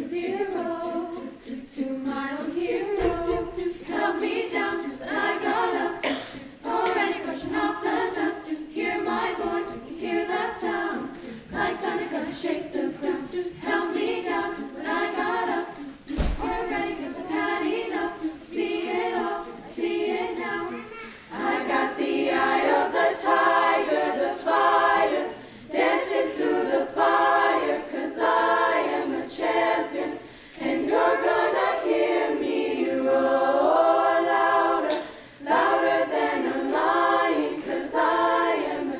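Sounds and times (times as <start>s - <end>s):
women's choir singing: 0.0s - 38.9s.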